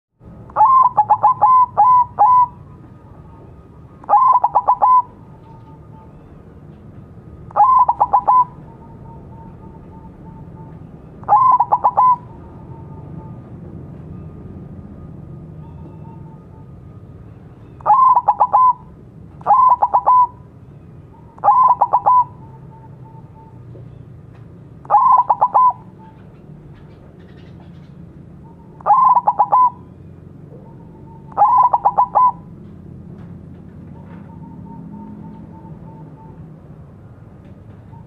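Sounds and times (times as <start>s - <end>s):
dove cooing: 0.5s - 6.1s, 7.5s - 13.4s, 17.8s - 20.5s, 21.2s - 23.6s, 24.8s - 26.4s, 28.5s - 32.6s.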